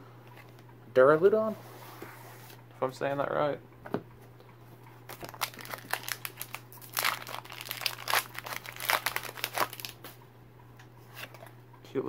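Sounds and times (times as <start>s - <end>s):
foil wrapper crinkling and tearing: 5.1s - 10.0s.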